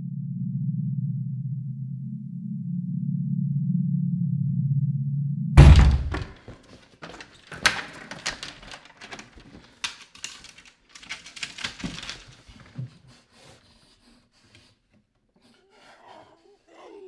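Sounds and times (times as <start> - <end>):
door lock clicking and rattling: 5.8 - 12.8.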